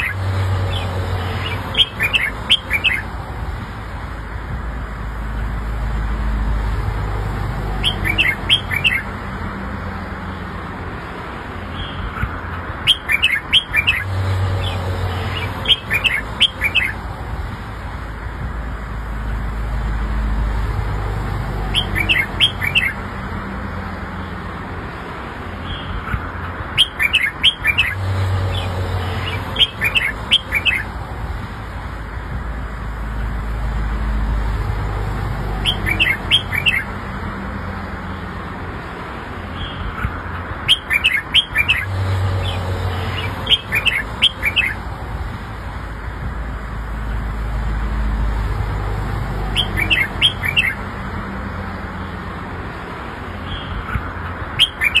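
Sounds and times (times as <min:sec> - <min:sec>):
bird chirping: 0:00.0 - 0:03.1, 0:07.6 - 0:09.2, 0:11.7 - 0:17.0, 0:21.6 - 0:23.0, 0:25.6 - 0:30.9, 0:35.5 - 0:36.9, 0:39.6 - 0:44.8, 0:49.4 - 0:50.9, 0:54.6 - 0:55.0.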